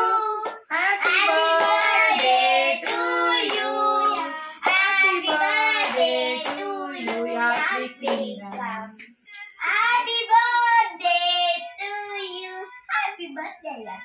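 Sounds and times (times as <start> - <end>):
children singing together: 0.0 - 8.3.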